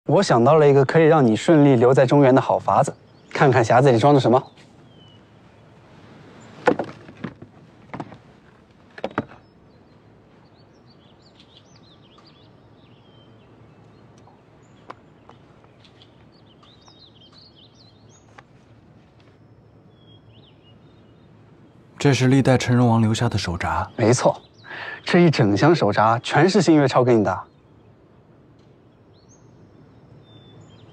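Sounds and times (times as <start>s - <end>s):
faint bird chirps: 0.1s - 6.6s, 9.0s - 30.9s.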